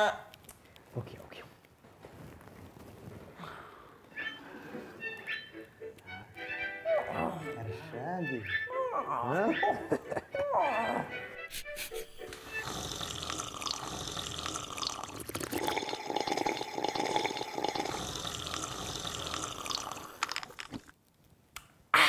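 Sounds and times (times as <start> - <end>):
tea slurping and gurgling: 11.5 - 20.9.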